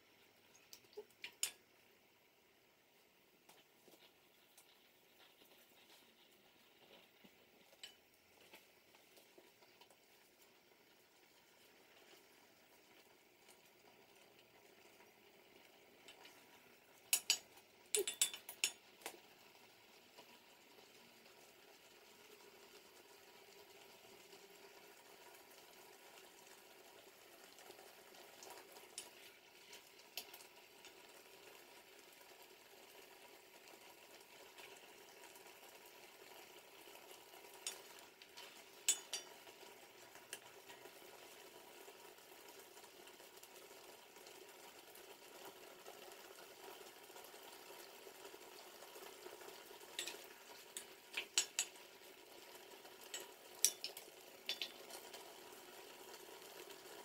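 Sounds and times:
faint cooking hiss: 0.0 - 57.0
spatula stirring apple slices: 37.4 - 40.9.

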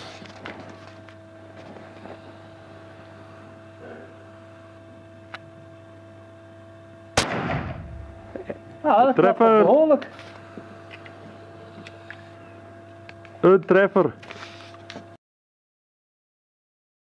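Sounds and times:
electrical hum: 0.0 - 15.2
revolver shot ringing: 7.2 - 8.2.

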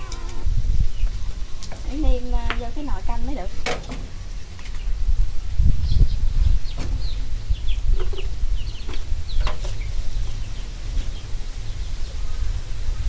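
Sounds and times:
steady low rumble: 0.0 - 13.0
chickens clucking: 7.6 - 11.2.

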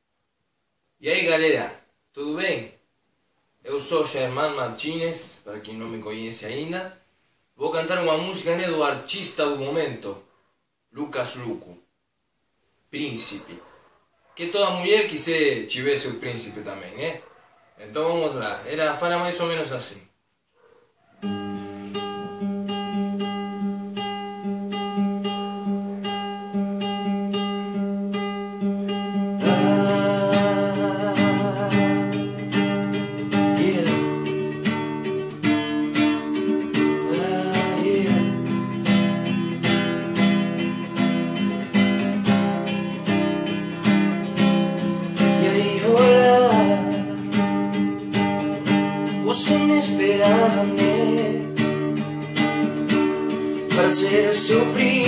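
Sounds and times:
classical guitar playing: 21.2 - 55.0.

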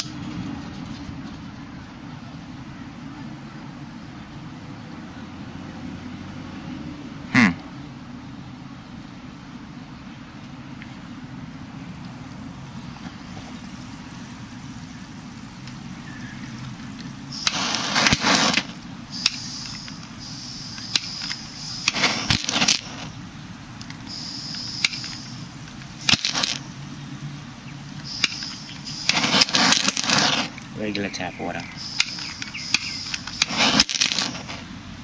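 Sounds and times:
gas hissing: 11.6 - 35.0
gas popping and cracking: 16.6 - 26.8, 27.8 - 34.8.

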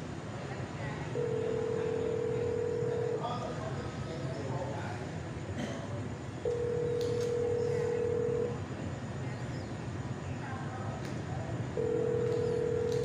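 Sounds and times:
phone ringback tone: 1.2 - 3.4, 6.5 - 8.6, 11.8 - 13.0.

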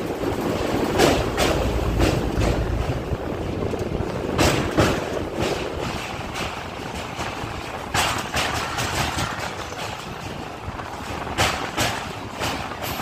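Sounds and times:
train rumbling on bridge: 0.0 - 13.0
wind on microphone: 0.0 - 13.0
whooshes of passing truss: 0.6 - 5.4.

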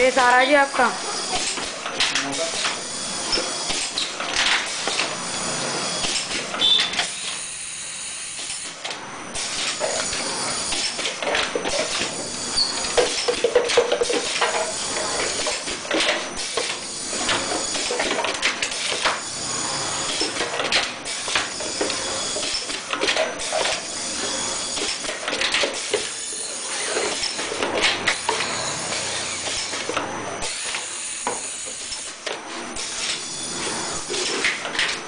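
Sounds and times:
machine clatter: 8.4 - 35.0.

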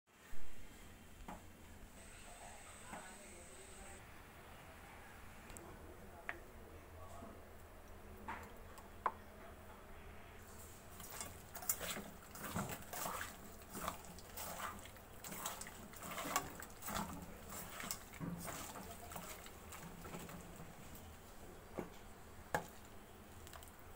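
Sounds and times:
wet squelching of hand mixing: 10.4 - 21.2.

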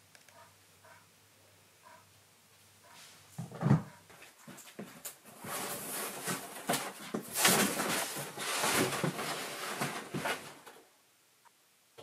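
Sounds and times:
scraping on cardboard box: 5.3 - 10.6.

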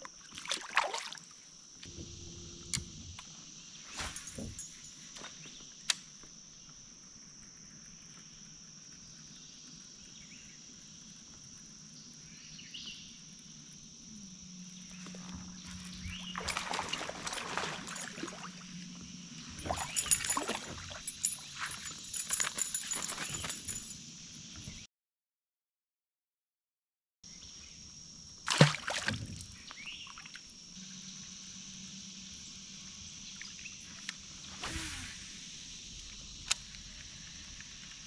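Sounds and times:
insects buzzing: 0.0 - 24.9, 27.3 - 38.0.

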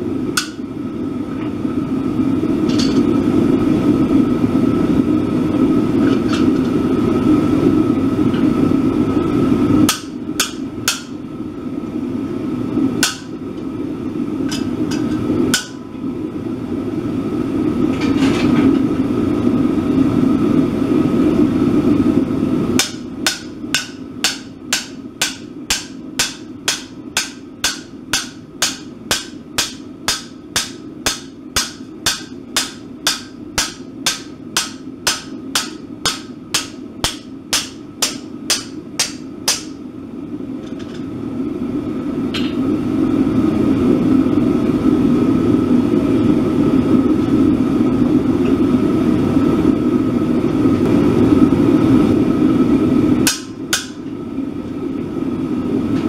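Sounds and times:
hammer striking steel on anvil: 0.4 - 0.7, 9.9 - 11.2, 13.0 - 13.4, 14.5 - 15.9, 22.8 - 39.8, 53.2 - 54.1.

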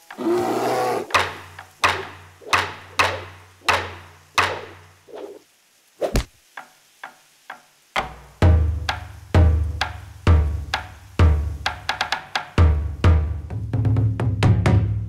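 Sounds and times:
heavy thud: 6.1 - 6.4.

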